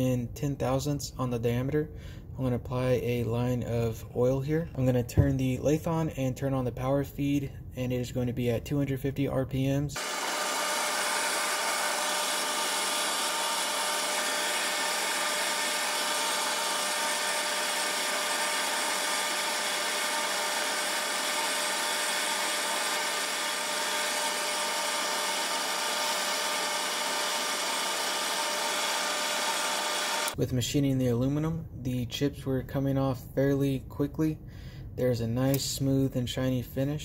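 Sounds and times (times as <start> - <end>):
lathe tool cutting hiss: 10.0 - 30.4
metal lathe whining: 10.0 - 30.4.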